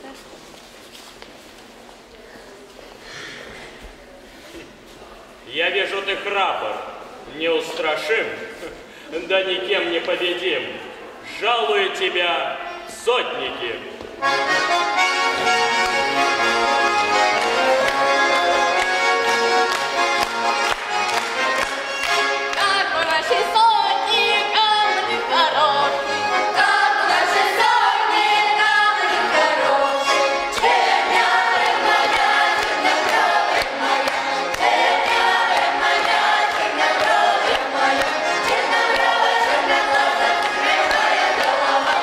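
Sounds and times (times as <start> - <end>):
accordion: 14.2 - 42.0
children singing in chorus: 26.5 - 42.0.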